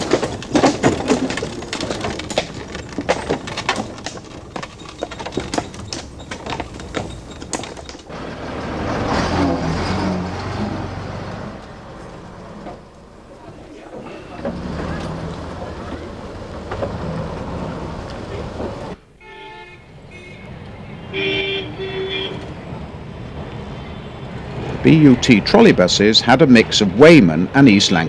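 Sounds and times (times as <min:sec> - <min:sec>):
irregular clattering knocks: 0:00.0 - 0:08.5
vehicle engine passing: 0:08.1 - 0:19.0.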